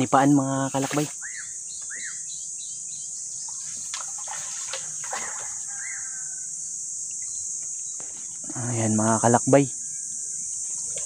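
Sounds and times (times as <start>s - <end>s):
high insect buzz: 0.0s - 11.0s
water splashing and dripping: 0.7s - 1.2s, 3.5s - 5.9s.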